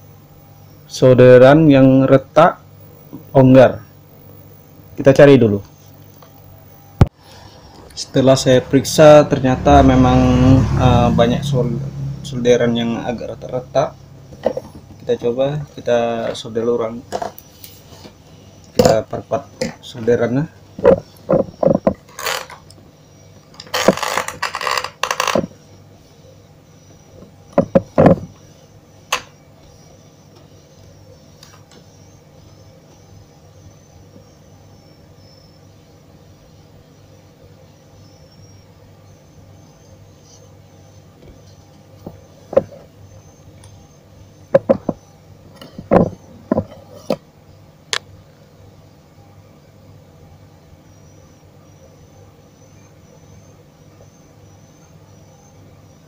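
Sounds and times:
steady low hum: 0.0s - 56.0s
short knocks: 27.6s - 28.4s, 44.5s - 45.0s, 45.8s - 46.8s.

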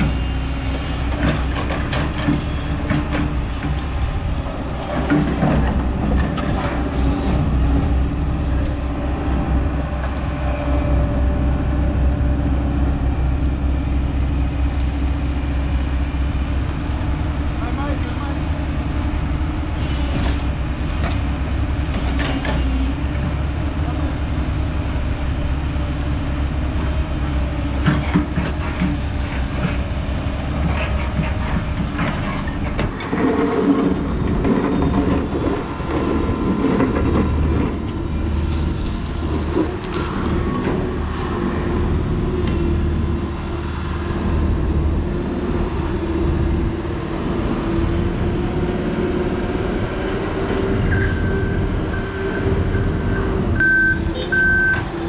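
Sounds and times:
excavator diesel engine under load: 0.0s - 55.0s
reversing alarm beeping: 50.8s - 55.0s.

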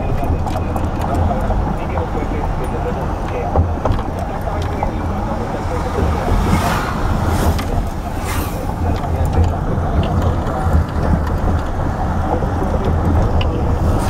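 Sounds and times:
car engine and road noise: 0.0s - 14.0s
tyre noise: 0.0s - 14.0s.

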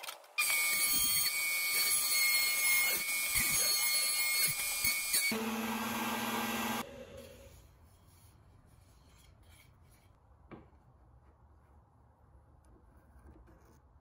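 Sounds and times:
router cutting wood: 0.4s - 6.8s
router winding down: 5.3s - 6.9s.

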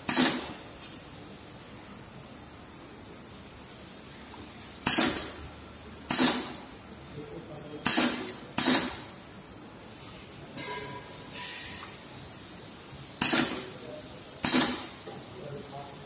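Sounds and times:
compressed air hissing: 0.0s - 0.7s, 4.8s - 5.4s, 6.1s - 6.7s, 7.8s - 9.2s, 11.3s - 15.4s.

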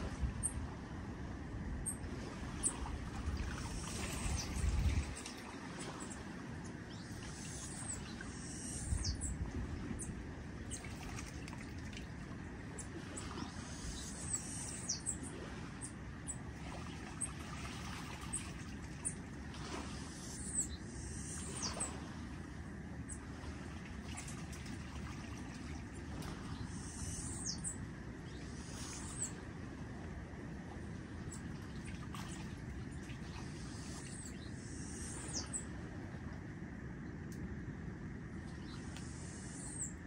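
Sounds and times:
gently lapping water: 0.0s - 40.0s
small birds chirping: 26.5s - 29.4s.

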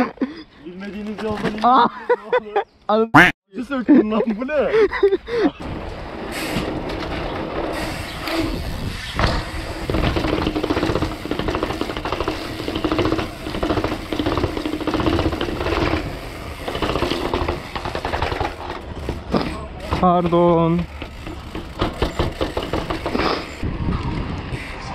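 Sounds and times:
bike rattling over rough ground: 0.6s - 1.8s, 5.6s - 24.3s.

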